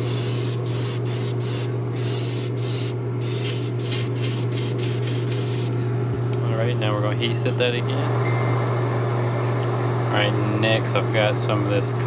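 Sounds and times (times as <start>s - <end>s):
airbrush spraying paint: 0.0s - 5.8s.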